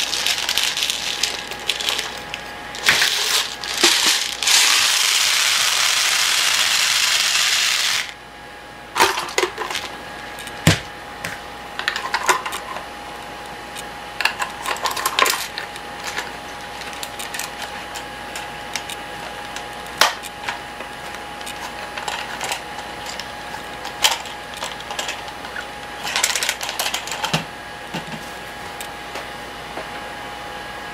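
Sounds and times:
plastic pellets pouring rattle: 0:00.0 - 0:08.2.

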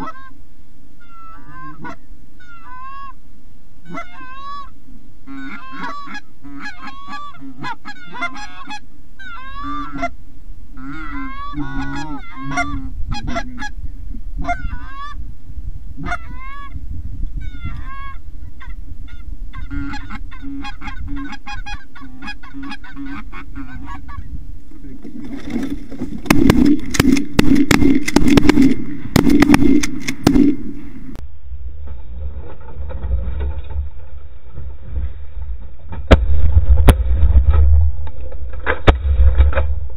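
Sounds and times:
goose honking and clucking: 0:00.0 - 0:00.4, 0:01.0 - 0:03.2, 0:03.8 - 0:15.2, 0:16.0 - 0:16.8, 0:17.4 - 0:31.2.

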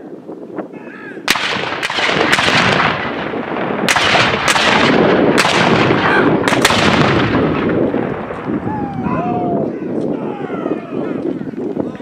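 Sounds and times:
cannons firing: 0:01.2 - 0:08.7
rumble after cannon shots: 0:01.3 - 0:08.7.

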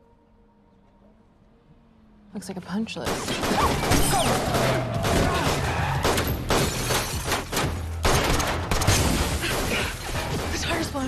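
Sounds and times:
pistol shots: 0:03.0 - 0:10.5.

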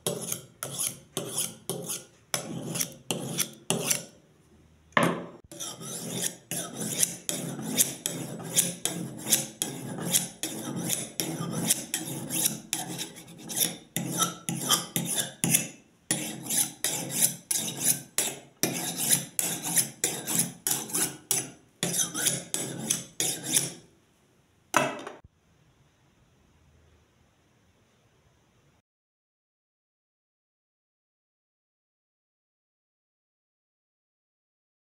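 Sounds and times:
knife scraping on ceramic: 0:00.0 - 0:04.2, 0:05.0 - 0:23.9.

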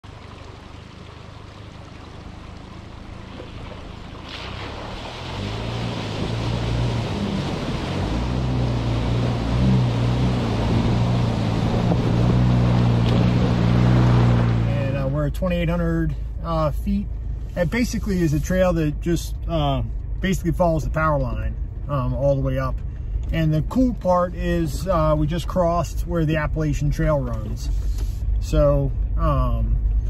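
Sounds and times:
tyres splashing through water: 0:00.0 - 0:15.3
car engine hum: 0:00.0 - 0:30.0
moving water: 0:00.0 - 0:30.0.

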